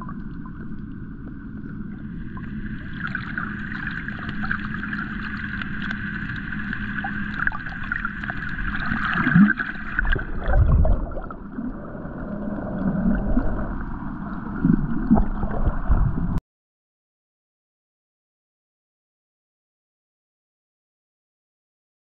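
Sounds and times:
low underwater swishes: 0.0s - 16.4s
muffled underwater rush: 0.0s - 16.4s.

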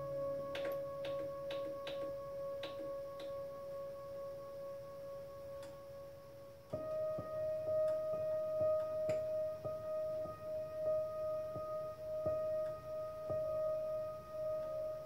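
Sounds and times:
regular short ticks: 0.5s - 3.4s.

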